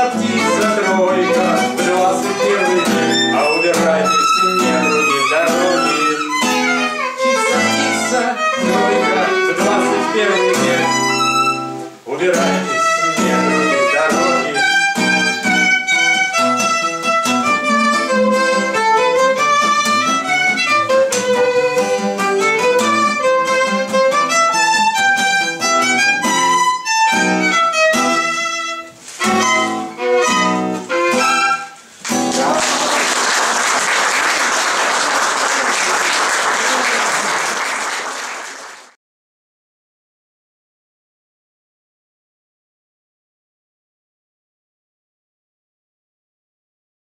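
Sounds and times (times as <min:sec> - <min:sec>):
violin melody: 0:00.0 - 0:32.3
acoustic guitar chords: 0:00.0 - 0:33.6
applause: 0:32.0 - 0:39.0.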